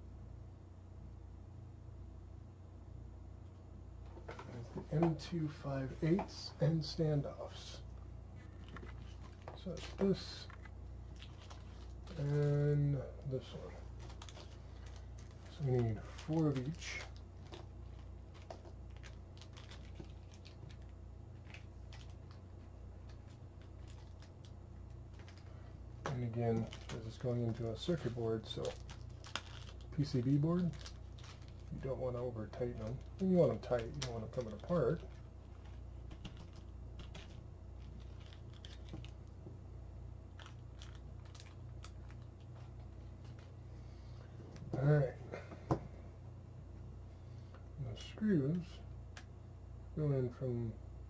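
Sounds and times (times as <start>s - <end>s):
low steady hum: 0.0s - 51.0s.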